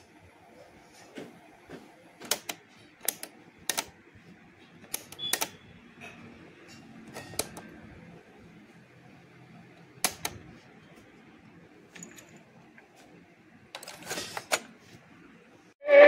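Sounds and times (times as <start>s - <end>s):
cassette mechanism clicks: 2.2s - 4.0s, 4.8s - 5.6s, 7.1s - 7.7s, 10.0s - 10.4s.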